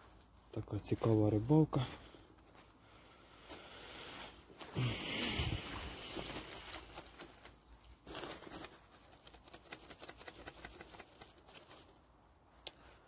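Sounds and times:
dry leaves rustling and crackling: 5.3s - 12.0s.

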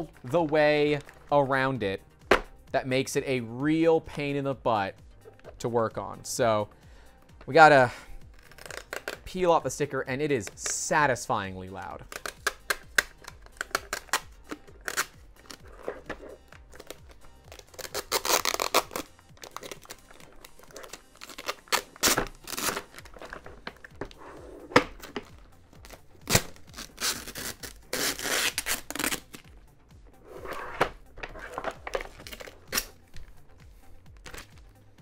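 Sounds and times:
sticker ripping off plastic: 12.0s - 24.2s, 24.8s - 29.4s.

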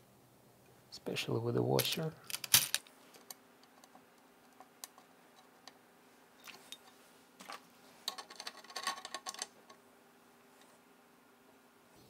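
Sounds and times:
nuts and washers rattling: 1.8s - 2.9s, 7.4s - 9.6s
metal hardware clicks and scrapes: 8.0s - 9.5s.

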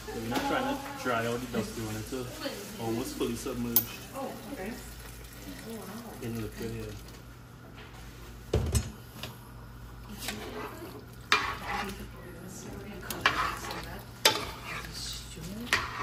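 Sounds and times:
pot sizzling: 0.0s - 16.0s
spoon scraping metal pot: 10.1s - 12.1s, 13.1s - 16.0s.

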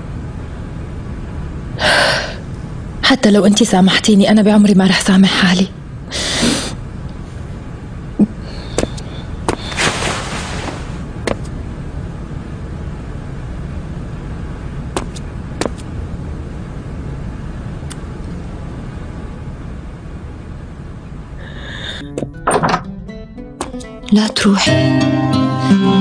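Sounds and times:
low background hum: 0.0s - 26.0s
breath-like hiss: 8.5s - 11.0s.

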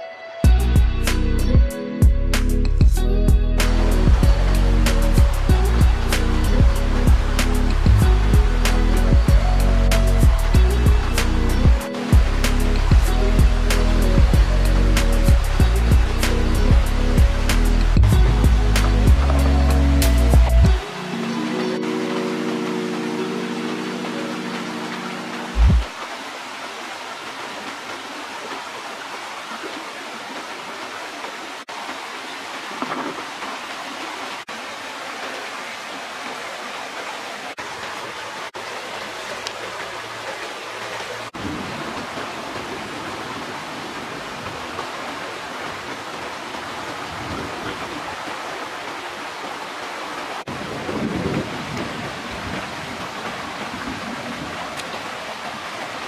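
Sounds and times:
river water rushing: 3.6s - 56.0s.

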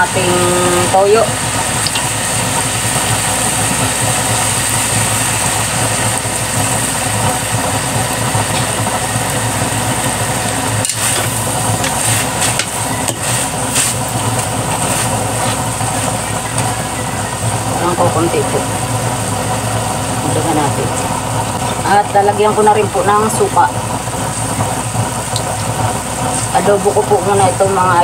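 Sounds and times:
chicken sizzling in a wok: 0.0s - 28.0s
metal spatula scraping a wok: 10.8s - 14.0s, 14.7s - 15.7s.

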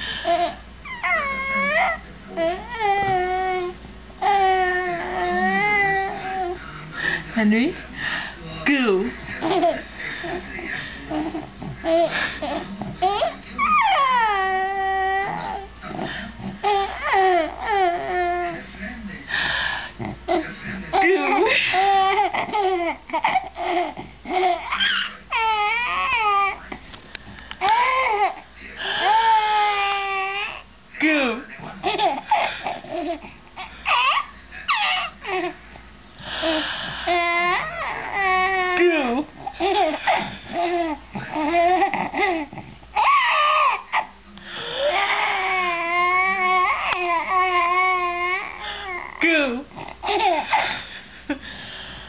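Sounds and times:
baby squealing and babbling: 21.9s - 26.6s, 33.9s - 35.4s
baby cooing and squealing: 33.9s - 35.4s, 40.6s - 44.0s.

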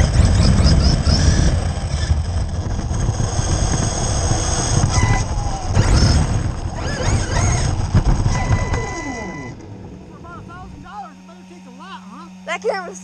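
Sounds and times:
electric motor whining: 0.0s - 13.0s
steady rumble: 0.0s - 13.0s.

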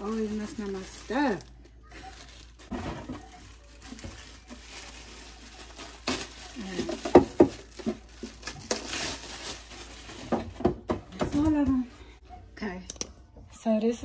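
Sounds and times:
packaging crinkling: 0.0s - 10.8s
plastic containers clicking and knocking: 6.1s - 8.8s.

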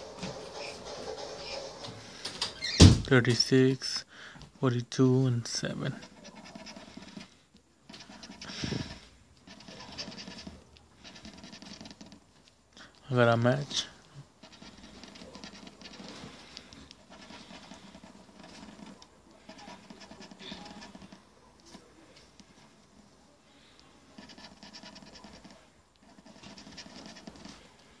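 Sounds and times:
coin scratching lottery ticket: 5.9s - 12.3s, 13.8s - 21.8s, 24.1s - 27.6s.

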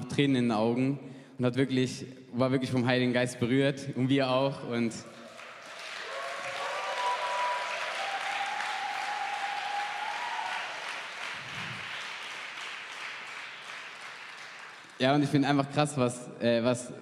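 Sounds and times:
congregation applauding: 5.2s - 15.3s.

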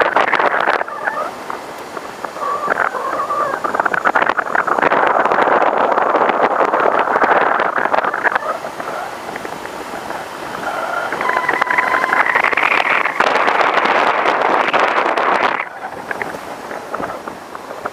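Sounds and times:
wind and road noise: 0.0s - 17.9s
short high tones: 11.2s - 13.3s.

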